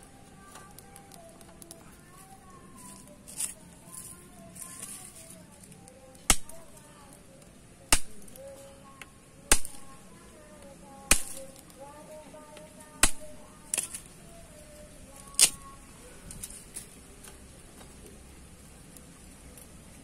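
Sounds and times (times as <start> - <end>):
wood fire popping and cracking: 0.1 - 2.5, 5.6 - 8.6, 9.5 - 10.2, 11.1 - 11.8.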